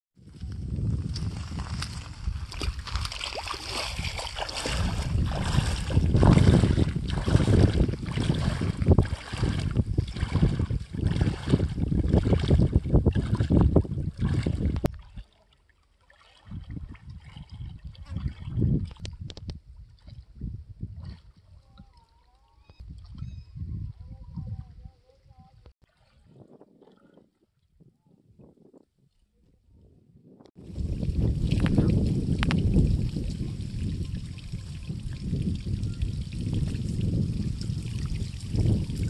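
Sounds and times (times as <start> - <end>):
wind on microphone: 0.2 - 15.2, 16.4 - 39.0
wading through shallow water: 0.2 - 27.9.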